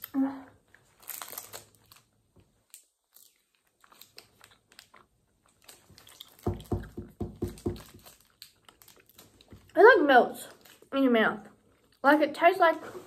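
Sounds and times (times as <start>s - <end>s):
quiet chewing: 0.5s - 6.8s, 7.7s - 9.8s, 10.4s - 12.0s.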